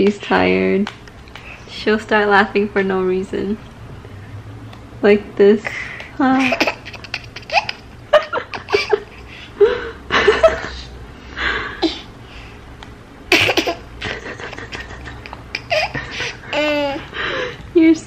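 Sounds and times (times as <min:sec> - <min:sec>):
baby giggling: 0:06.4 - 0:09.2, 0:13.3 - 0:17.2.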